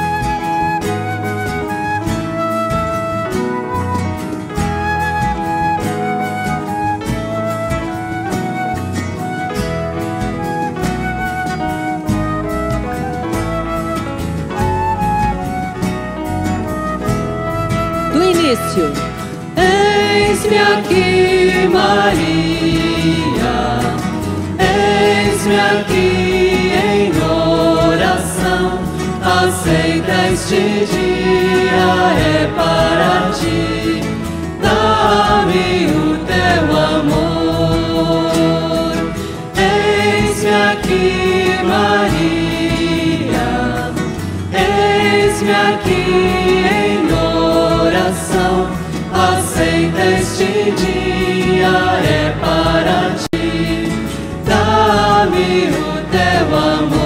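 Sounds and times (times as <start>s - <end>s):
flute: 0.0s - 50.9s
acoustic guitars: 0.0s - 57.0s
choir singing a hymn: 18.8s - 57.0s
electric bass: 20.9s - 57.0s.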